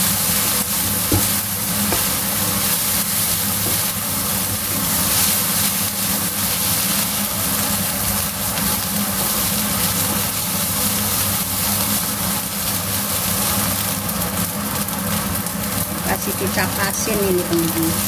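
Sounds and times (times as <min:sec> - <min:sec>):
spatula stirring in a wok: 0:00.0 - 0:14.4
fried rice sizzling in a wok: 0:00.0 - 0:18.0.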